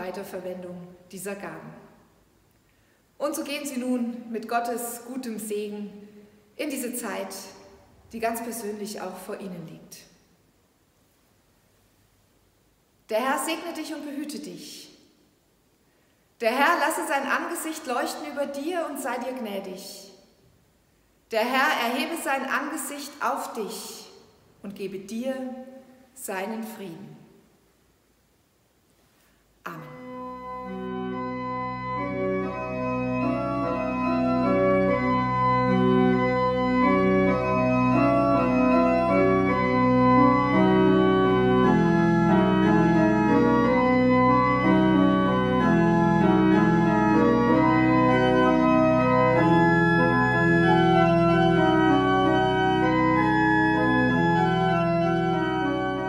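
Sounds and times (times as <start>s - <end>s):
church organ chords: 29.8s - 56.0s.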